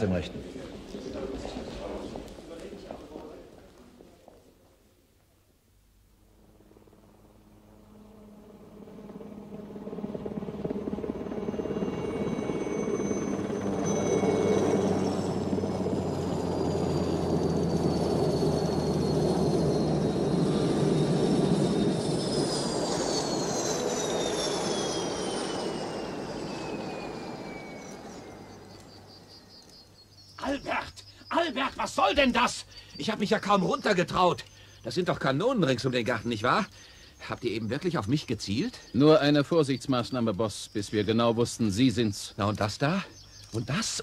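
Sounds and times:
helicopter rotor and engine: 6.3 - 44.0
high whine sliding down: 11.9 - 29.3.

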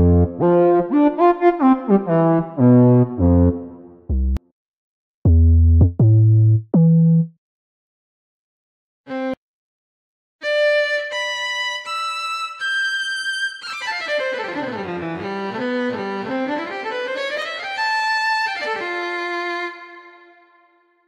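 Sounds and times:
solo violin notes: 13.8 - 20.7.

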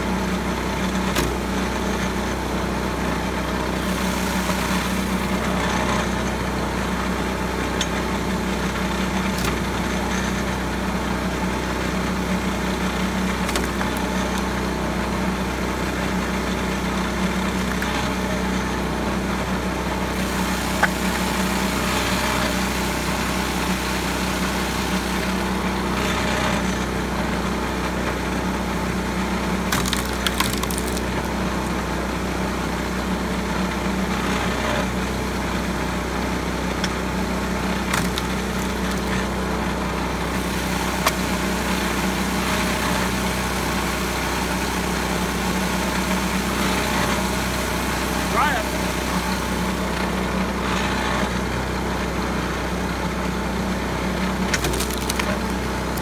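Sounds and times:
small gas engine running: 0.0 - 56.0
logs cracking and splintering: 13.1 - 14.6, 29.6 - 31.7, 37.6 - 39.4, 54.3 - 56.0.

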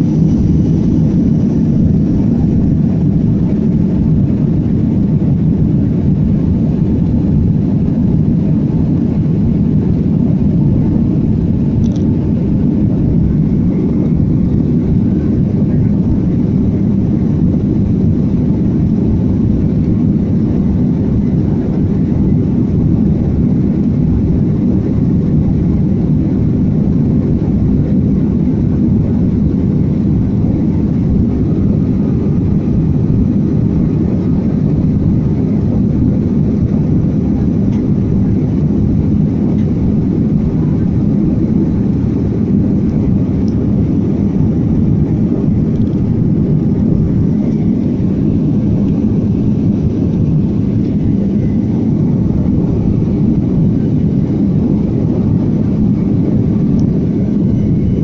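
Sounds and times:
air rushing over fuselage: 0.0 - 58.0
jet engines in cabin: 0.0 - 58.0.

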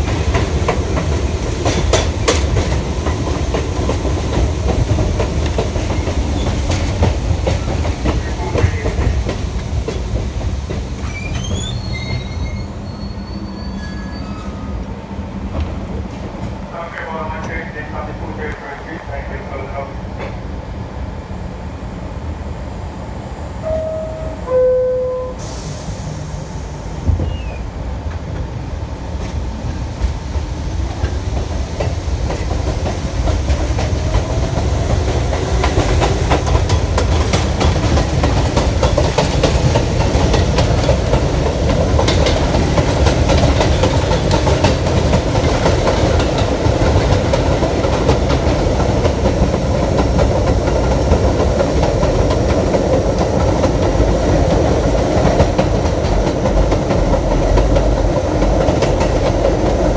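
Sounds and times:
two-note descending door chime: 23.7 - 25.5.

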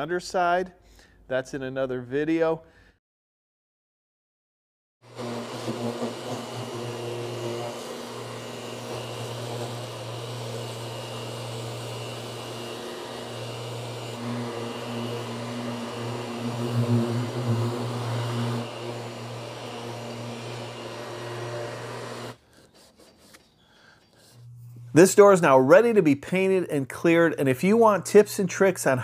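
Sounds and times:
dust extraction vacuum: 5.0 - 22.4
orbital sander running: 5.0 - 22.4.

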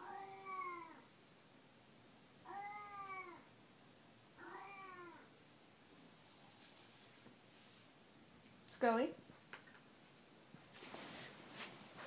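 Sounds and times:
cat meowing: 0.0 - 1.1, 2.4 - 3.5, 4.4 - 5.3.

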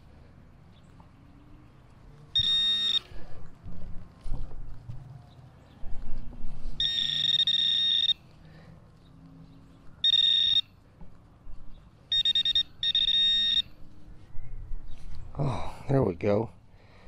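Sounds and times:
metal detector high-pitched tone: 2.4 - 3.1, 6.8 - 8.2, 10.0 - 10.7, 12.1 - 13.8.

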